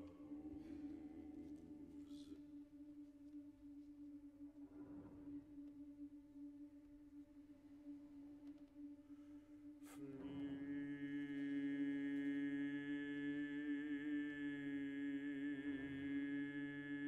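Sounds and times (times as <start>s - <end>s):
man singing low note: 9.9s - 17.0s.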